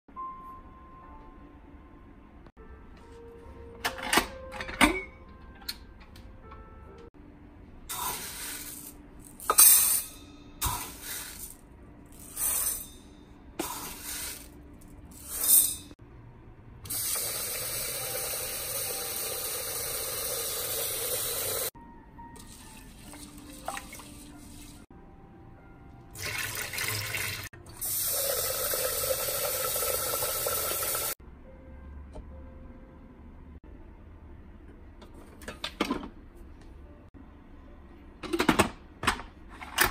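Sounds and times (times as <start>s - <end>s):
tap water running into pot: 26.2s - 31.2s.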